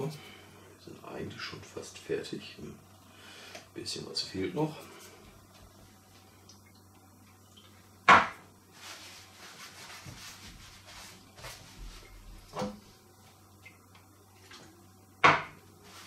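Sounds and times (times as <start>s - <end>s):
rubbing and rustling: 8.7s - 13.5s.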